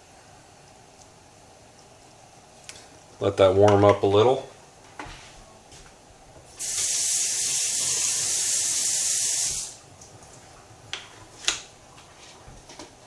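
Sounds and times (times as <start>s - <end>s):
loud steady hiss: 6.6s - 9.8s.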